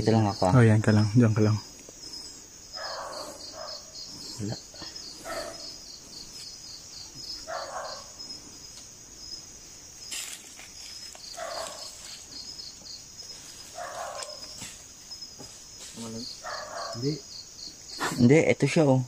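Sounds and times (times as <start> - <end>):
crickets chirping: 0.0 - 19.0
dog barking: 2.8 - 4.0, 5.2 - 5.8, 7.4 - 8.2, 11.3 - 12.0, 13.7 - 14.6, 16.4 - 17.2.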